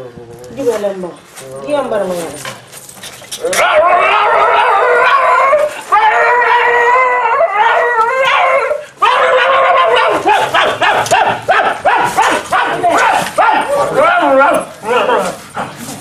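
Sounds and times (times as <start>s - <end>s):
man howling and wailing: 3.4s - 10.6s.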